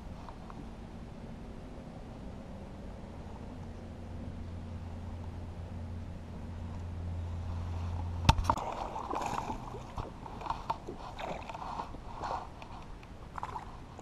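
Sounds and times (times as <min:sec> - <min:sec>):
steady low hum: 0:00.0 - 0:14.0
fish splashing at water surface: 0:08.2 - 0:14.0.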